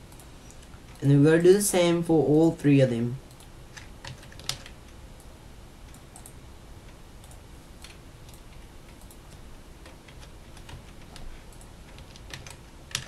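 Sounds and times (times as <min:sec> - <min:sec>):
keyboard keys clicking: 0:03.3 - 0:04.8, 0:07.2 - 0:13.0.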